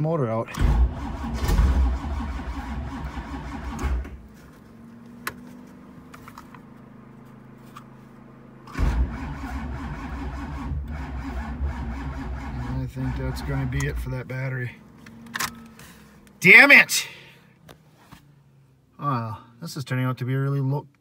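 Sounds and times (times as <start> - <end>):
car starter cranking: 0.5 - 4.3, 8.6 - 14.2.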